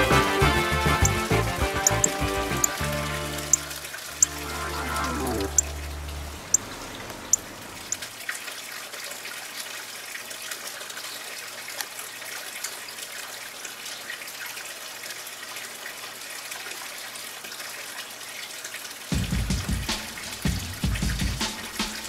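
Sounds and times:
running water trickling: 0.0 - 22.0
high-pitched chirps: 1.0 - 1.2, 1.8 - 2.8, 3.5 - 6.7.

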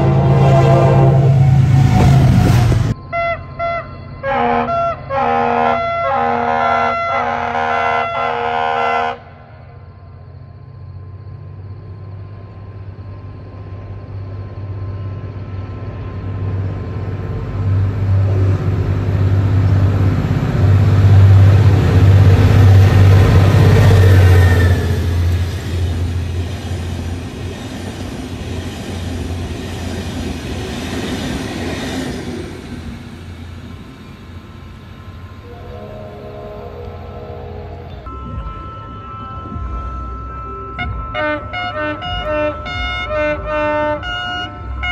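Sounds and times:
locomotive horn blasts: 0.0 - 1.9, 3.1 - 9.4, 35.4 - 38.1, 40.8 - 44.9
locomotive engine drone: 0.0 - 44.9
rolling noise of train coaches: 0.0 - 44.9.

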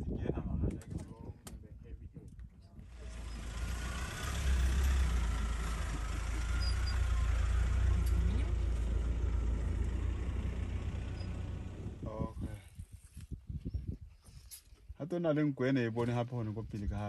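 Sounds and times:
vehicle engine idling: 2.9 - 12.6.

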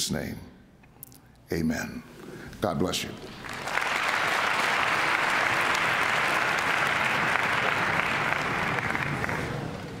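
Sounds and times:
large audience applauding: 3.2 - 10.0.

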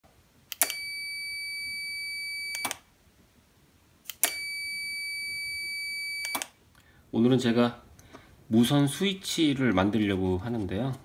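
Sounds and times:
multimeter continuity beep: 0.6 - 2.8, 4.2 - 6.5
relay click: 6.2 - 6.6.

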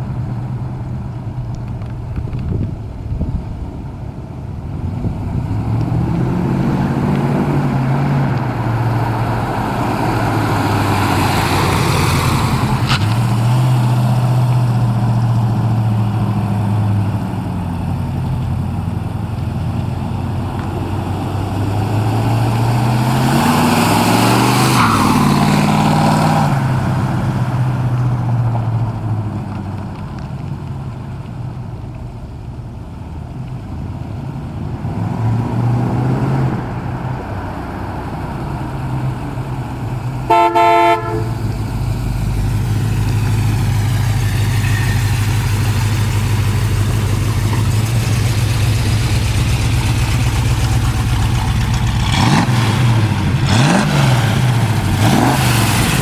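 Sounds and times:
car horn toot: 40.3 - 41.4.

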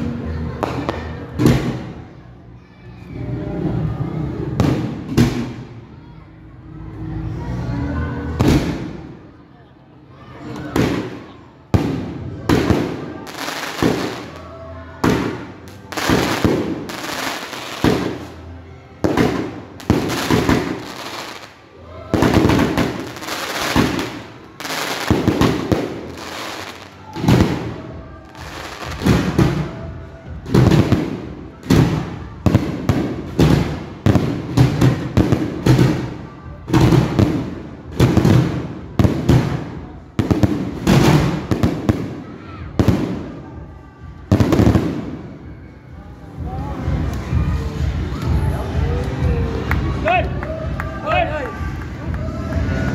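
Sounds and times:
fireworks bursting with loud bangs: 4.6 - 5.7, 8.4 - 9.1, 10.8 - 14.4, 15.0 - 43.3, 44.3 - 45.2.

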